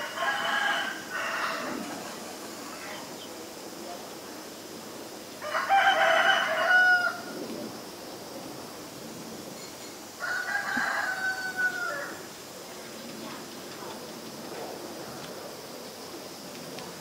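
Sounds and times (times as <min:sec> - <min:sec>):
rooster crowing: 0:00.0 - 0:02.0, 0:05.4 - 0:07.3, 0:10.2 - 0:12.2.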